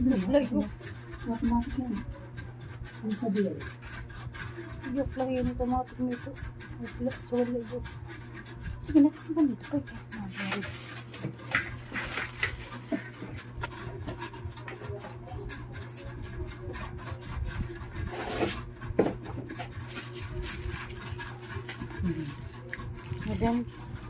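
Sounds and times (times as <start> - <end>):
steady low hum: 0.0 - 24.0
plastic wrapping crinkling: 10.6 - 13.2, 19.8 - 24.0.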